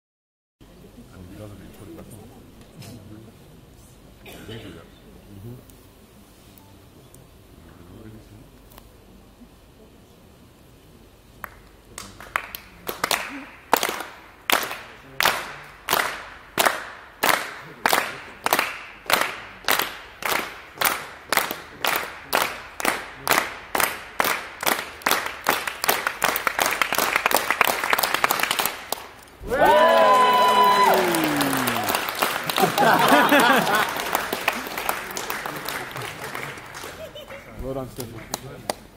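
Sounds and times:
crowd clapping in rhythm: 0:11.4 - 0:38.9.

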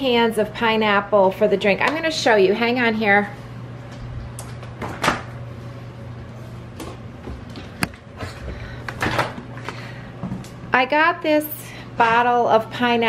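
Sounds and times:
knocks and clicks of kitchen items: 0:01.8 - 0:02.1, 0:06.7 - 0:10.6.

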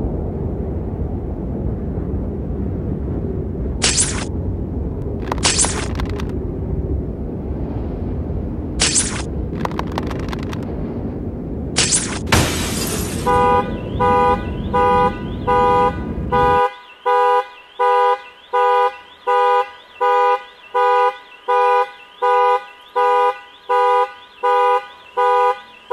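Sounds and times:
car alarm horn honking: 0:13.2 - 0:25.9.

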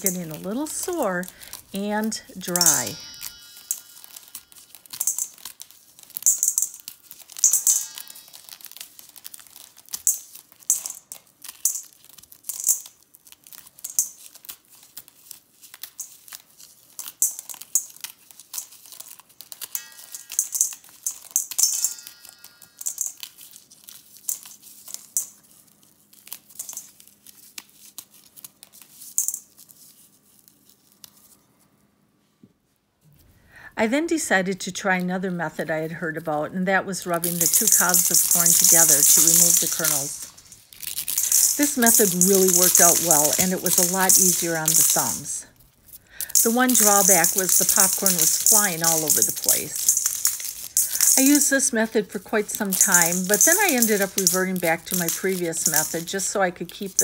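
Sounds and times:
popcorn kernels falling into bowl: 0:00.0 - 0:29.8, 0:37.0 - 0:57.0
metal bowl ringing: 0:02.4 - 0:08.8, 0:19.7 - 0:23.3, 0:37.4 - 0:45.2.

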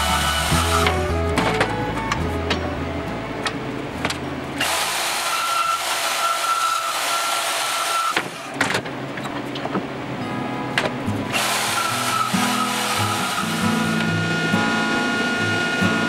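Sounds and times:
band saw cutting metal rod: 0:00.0 - 0:01.6, 0:04.6 - 0:08.5, 0:11.3 - 0:16.0.

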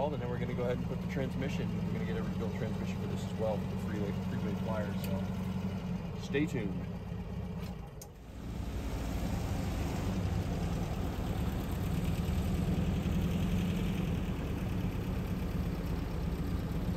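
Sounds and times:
van engine running: 0:00.0 - 0:16.9.

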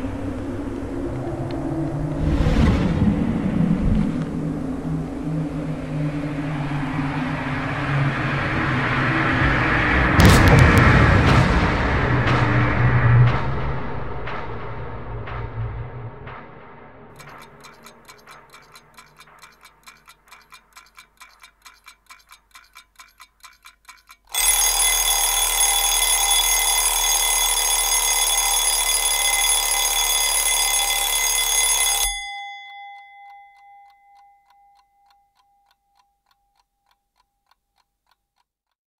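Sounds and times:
clock ticking rapidly: 0:17.1 - 0:38.8
alarm clock ringing: 0:17.2 - 0:37.5.

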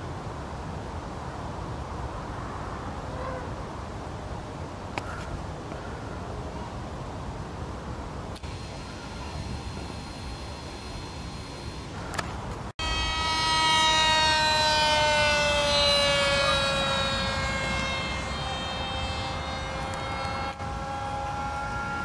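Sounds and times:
rc plane electric motor whine: 0:08.4 - 0:22.0.

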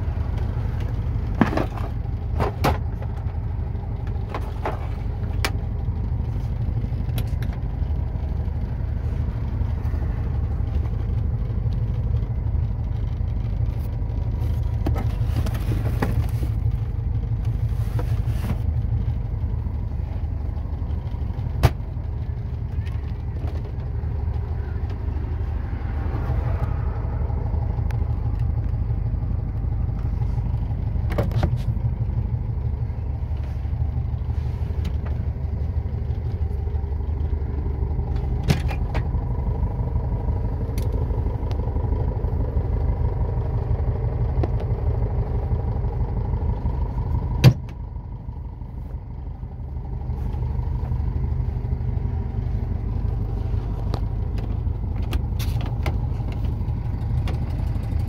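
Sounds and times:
interior rattles and clicks: 0:00.0 - 0:58.0
van engine low rumble: 0:00.0 - 0:58.0.

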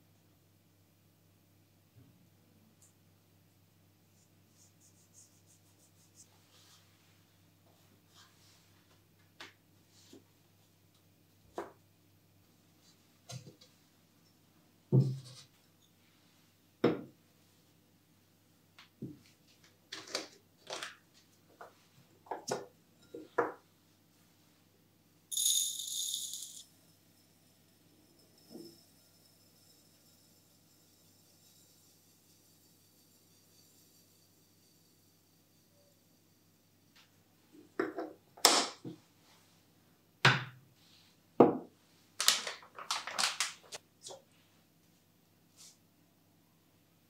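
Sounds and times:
coffee granules pouring into glass: 0:25.3 - 0:36.3
plastic bag crinkling: 0:42.2 - 0:43.8.

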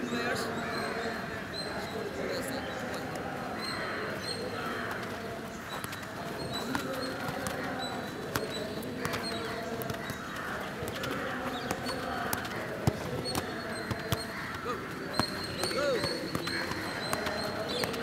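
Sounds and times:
birds calling: 0:00.0 - 0:18.0
footballs being kicked: 0:04.5 - 0:18.0.

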